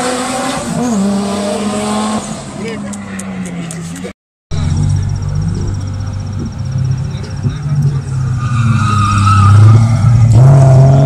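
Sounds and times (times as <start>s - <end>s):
car engine revving: 0.0s - 11.0s
tyres squealing: 5.0s - 10.2s.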